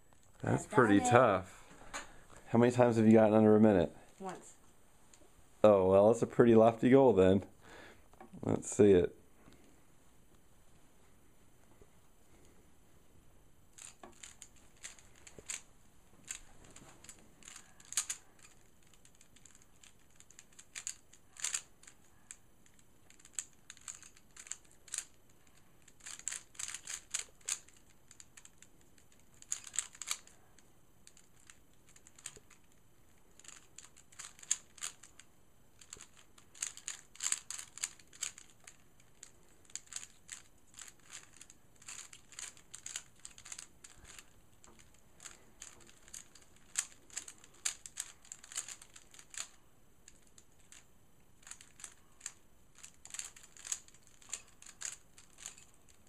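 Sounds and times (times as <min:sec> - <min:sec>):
puzzle cube clicking: 0:13.8 - 0:30.3, 0:31.0 - 0:32.8, 0:33.4 - 0:50.8, 0:51.4 - 0:56.0.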